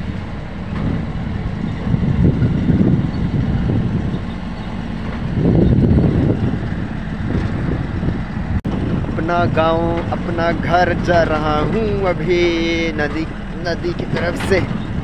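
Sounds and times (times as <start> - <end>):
truck rumbling on dirt road: 0.0 - 15.0.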